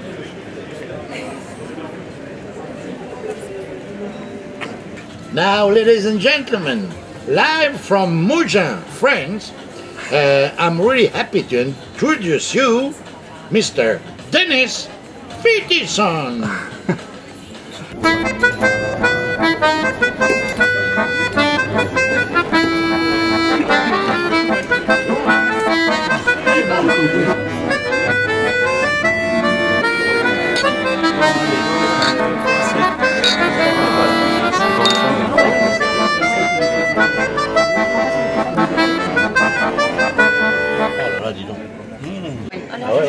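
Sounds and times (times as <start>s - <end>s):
background music: 18.0s - 41.2s.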